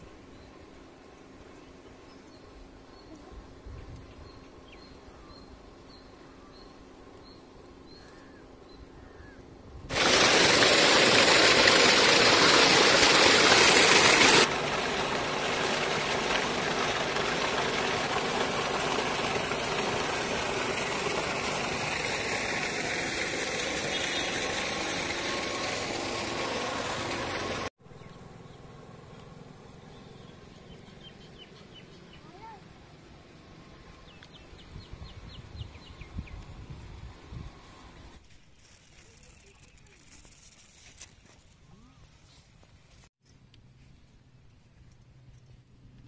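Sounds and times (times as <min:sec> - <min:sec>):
stream water rushing: 0:09.9 - 0:27.7.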